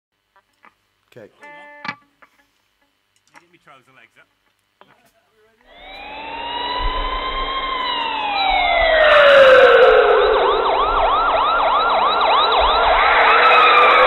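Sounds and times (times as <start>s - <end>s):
fast yelping siren: 5.7s - 14.0s
wailing siren: 5.7s - 14.0s.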